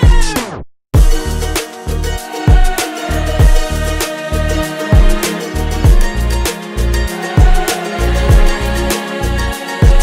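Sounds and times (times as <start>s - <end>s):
bass drum hits: 1.0s - 1.6s, 2.5s - 4.0s, 5.8s - 6.4s, 7.4s - 8.8s
background music: 1.0s - 10.0s.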